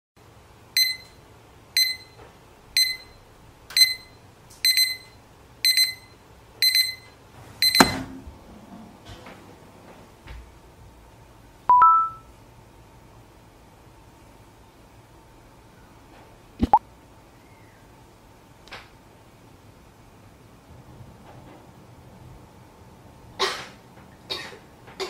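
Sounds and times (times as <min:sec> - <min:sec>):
digital alarm clock beeping: 0:00.8 - 0:01.1, 0:01.8 - 0:02.1, 0:02.8 - 0:03.2, 0:03.8 - 0:08.0, 0:11.7 - 0:12.2
two-note notification chime: 0:11.7 - 0:12.2.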